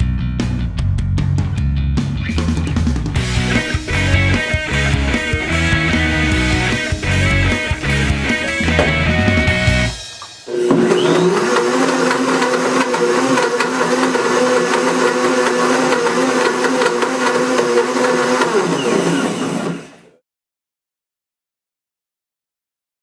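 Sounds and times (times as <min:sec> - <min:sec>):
blender motor running: 0:10.5 - 0:20.2.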